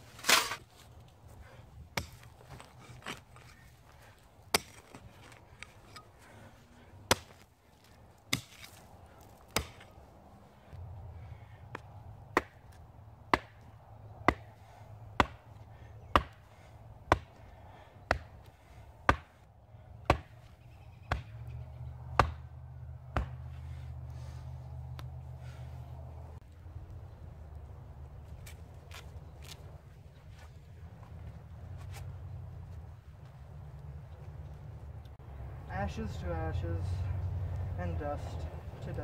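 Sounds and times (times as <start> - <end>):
rock pounding wooden post: 7.1 - 7.4, 8.3 - 8.8, 11.7 - 12.7, 15.2 - 15.4, 16.1 - 16.4, 22.2 - 22.4, 23.1 - 23.4.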